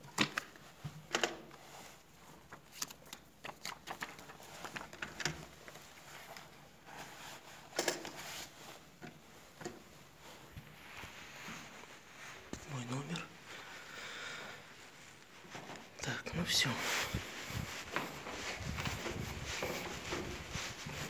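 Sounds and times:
paper rustling: 0:01.4 - 0:12.6, 0:16.8 - 0:21.0.

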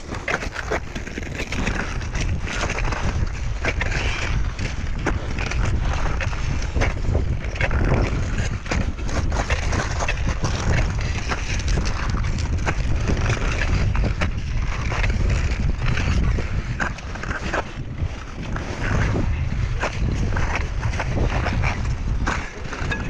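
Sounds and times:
footsteps crunching on snow and ice: 0:00.0 - 0:23.0
wind buffeting microphone: 0:00.0 - 0:23.0.

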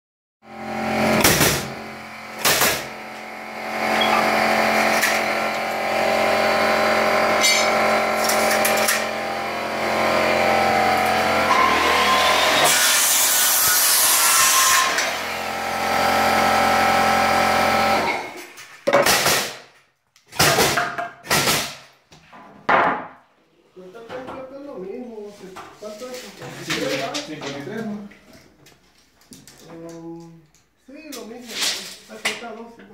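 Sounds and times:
air compressor running: 0:00.4 - 0:18.4
sharp bangs: 0:01.1 - 0:01.8.

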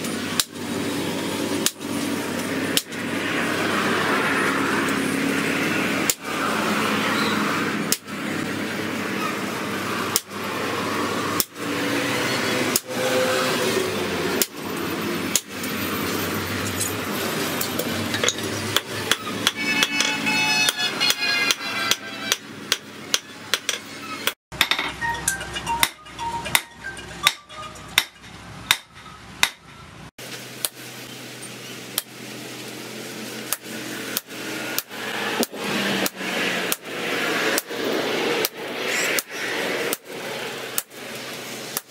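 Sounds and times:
hammer striking hot metal on anvil: 0:18.1 - 0:23.8, 0:24.6 - 0:25.0, 0:25.8 - 0:29.7.

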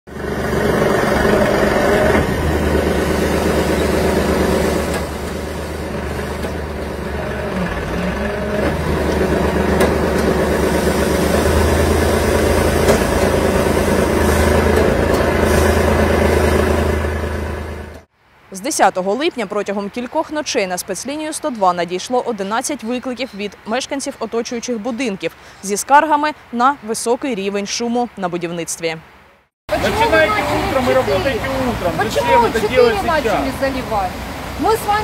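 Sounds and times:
diesel engine droning: 0:00.1 - 0:18.1, 0:29.7 - 0:35.0.

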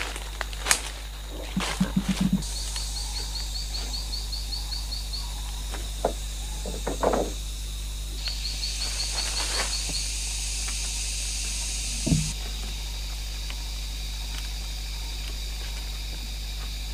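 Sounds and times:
forest ambience: 0:00.0 - 0:16.9
high rapid chirping call: 0:01.4 - 0:03.6
bamboo poles knocking: 0:06.0 - 0:07.4, 0:12.0 - 0:12.7.

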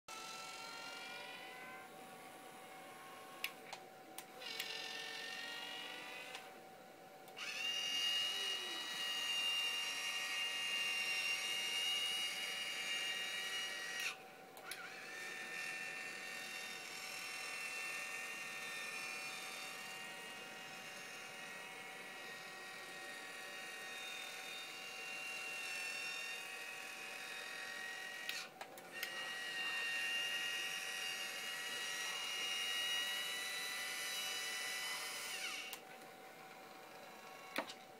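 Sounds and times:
small electric motor whining: 0:00.1 - 0:03.7, 0:04.3 - 0:06.6, 0:07.3 - 0:37.8.

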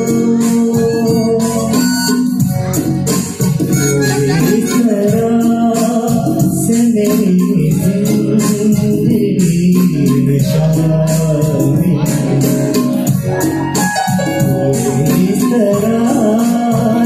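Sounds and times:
man singing slow melody: 0:00.0 - 0:02.6, 0:03.6 - 0:17.0
harmonium: 0:00.0 - 0:05.9
electronic keyboard: 0:00.0 - 0:17.0
light steady percussion beat: 0:00.0 - 0:17.0.

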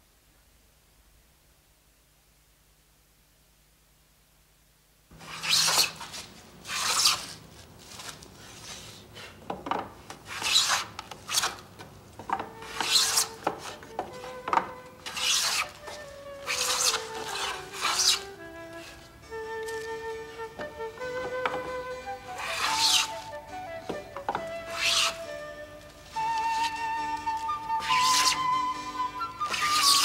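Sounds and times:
plane scraping wood: 0:05.2 - 0:07.4, 0:10.2 - 0:11.6, 0:12.4 - 0:19.0, 0:20.6 - 0:23.3, 0:23.9 - 0:25.4, 0:27.7 - 0:28.6, 0:29.4 - 0:30.0.

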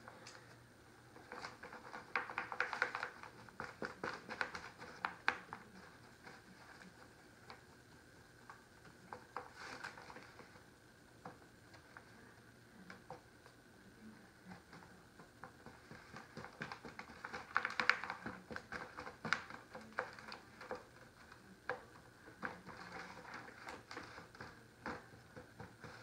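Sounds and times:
vinyl sheet crinkling: 0:01.2 - 0:07.8, 0:08.4 - 0:10.7, 0:15.6 - 0:26.0.

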